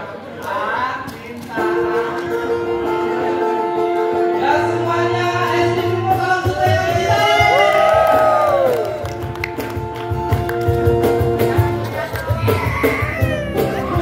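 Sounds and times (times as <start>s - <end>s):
person singing: 0.5s - 8.7s, 11.4s - 14.0s
acoustic band playing: 1.0s - 14.0s
electric bass: 1.6s - 14.0s.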